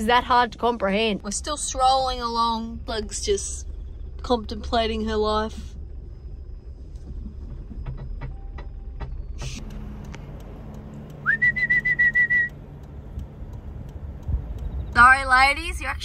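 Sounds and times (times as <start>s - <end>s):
vehicle engine humming: 0.0s - 16.0s
dog whistle pips: 11.2s - 12.5s.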